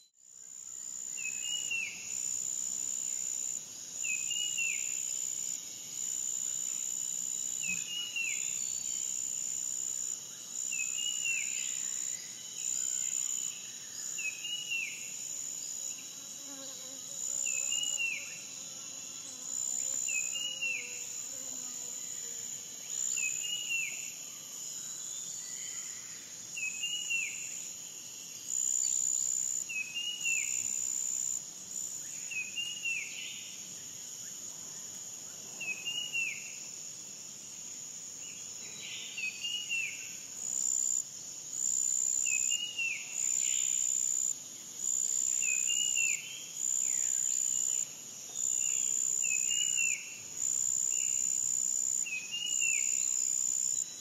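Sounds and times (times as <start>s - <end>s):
cicadas buzzing: 35.6s - 54.0s.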